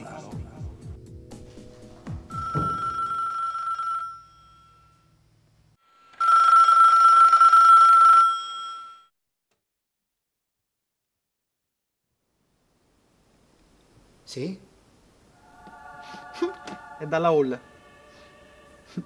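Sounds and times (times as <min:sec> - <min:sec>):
telephone ringing: 0:02.3 - 0:05.0, 0:06.1 - 0:09.1.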